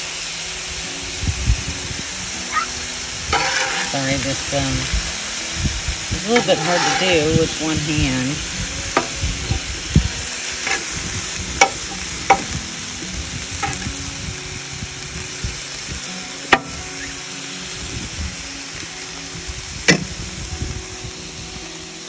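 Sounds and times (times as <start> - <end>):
vegetables sizzling on griddle: 0.0 - 22.0
metal spatula scraping griddle: 3.3 - 4.9, 6.1 - 13.9.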